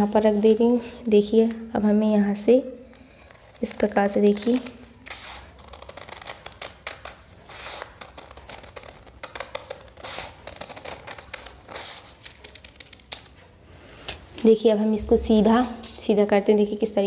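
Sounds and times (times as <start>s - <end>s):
scissors snipping paper: 2.9s - 13.5s
paper rustling: 2.9s - 14.5s.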